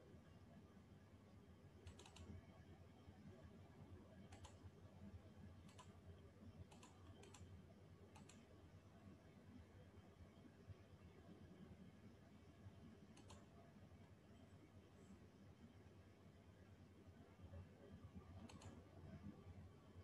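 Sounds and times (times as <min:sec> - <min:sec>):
low room hum: 0:00.0 - 0:20.0
faint computer clicks: 0:01.8 - 0:02.4, 0:04.3 - 0:04.7, 0:05.7 - 0:06.0, 0:06.7 - 0:08.5, 0:13.1 - 0:13.6, 0:18.3 - 0:18.8.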